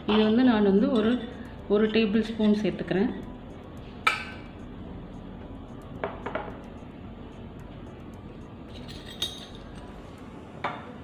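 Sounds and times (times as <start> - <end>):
steel spoon clinking against glass bowl: 8.7 - 9.8.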